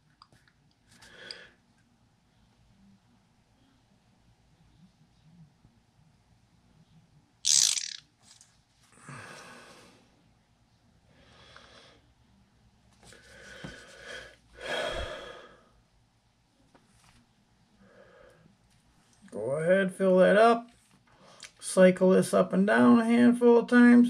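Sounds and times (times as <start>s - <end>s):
man breathing slowly: 8.9s - 10.1s, 11.1s - 12.0s, 13.2s - 15.8s.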